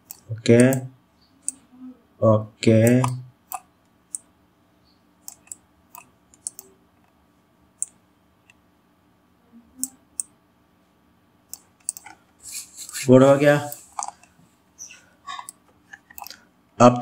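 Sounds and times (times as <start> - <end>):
mouse and keyboard clicks: 0.0 - 0.8, 2.8 - 4.3, 5.2 - 7.1, 11.5 - 12.2, 13.6 - 16.4
faint steady hum: 0.0 - 17.0.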